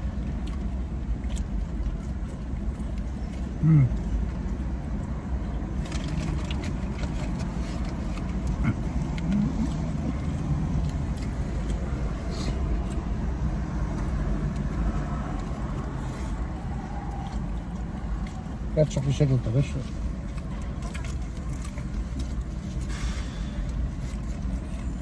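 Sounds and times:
faint clicks and rustles: 0:00.1 - 0:13.3.

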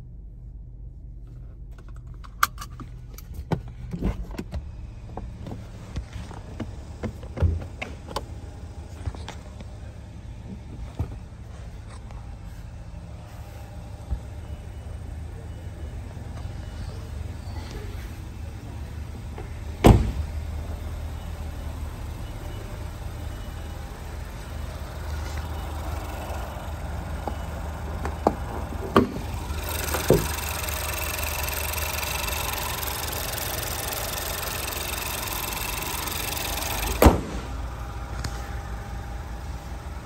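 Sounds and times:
car engine idling: 0:00.0 - 0:40.0
hood clicks and knocks: 0:01.7 - 0:08.3
car hood thump shut: 0:19.8 - 0:20.2, 0:37.0 - 0:37.5.

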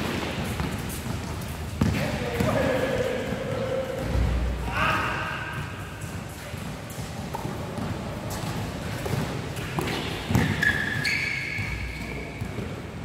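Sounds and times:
basketball bouncing: 0:01.8 - 0:02.6, 0:07.4 - 0:10.8.

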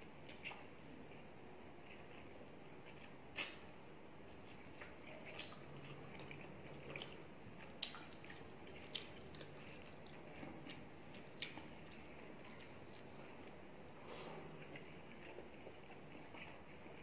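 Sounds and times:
wet chewing smacks: 0:04.4 - 0:13.6.

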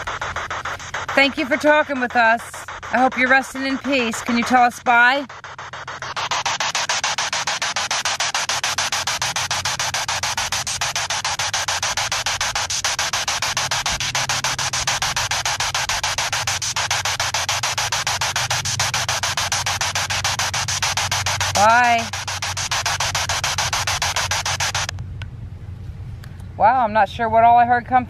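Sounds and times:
pulsing radio static: 0:00.0 - 0:25.0
low steady hum: 0:20.4 - 0:28.0.

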